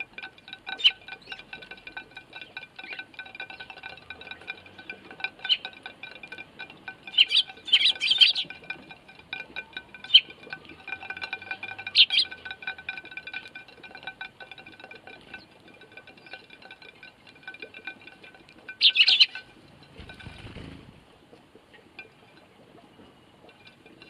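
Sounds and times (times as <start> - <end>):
sparrows chirping: 0.7 - 13.6, 18.7 - 19.5.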